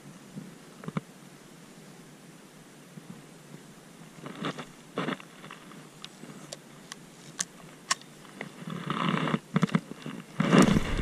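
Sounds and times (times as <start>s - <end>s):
rustling scrape: 8.4s - 11.0s.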